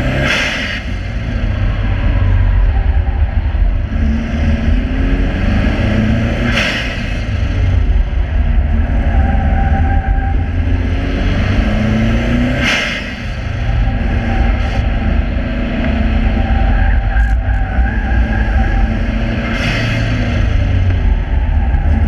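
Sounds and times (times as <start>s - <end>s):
car engine running hard: 0.0s - 22.0s.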